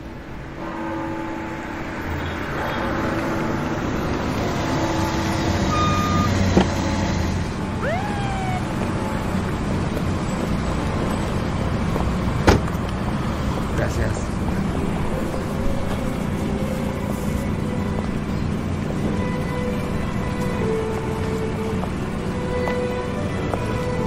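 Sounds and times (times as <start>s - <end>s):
rumble of passing vehicles: 0.0s - 24.0s
brief squeal: 5.8s - 6.5s, 7.8s - 8.6s
short high tone: 7.8s - 8.8s.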